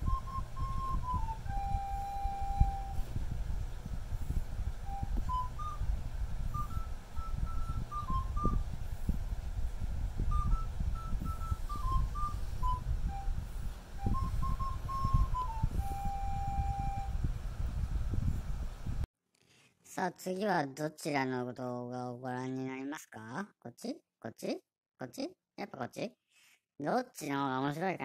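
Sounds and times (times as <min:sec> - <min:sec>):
whistle-like melody: 0:00.0 - 0:03.1, 0:04.8 - 0:05.9, 0:06.5 - 0:08.7, 0:10.2 - 0:17.2
low rumble: 0:00.0 - 0:19.0.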